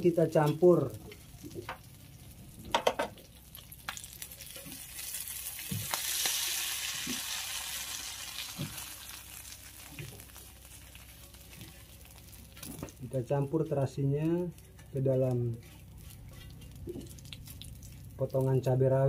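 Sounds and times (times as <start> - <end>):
oil sizzling in pan: 1.2 - 13.2.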